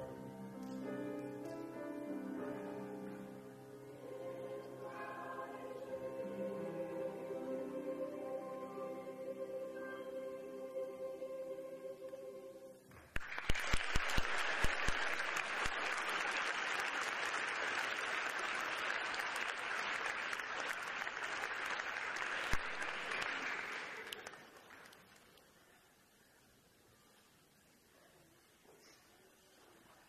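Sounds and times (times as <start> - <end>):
audience applauding: 13.0 - 25.5.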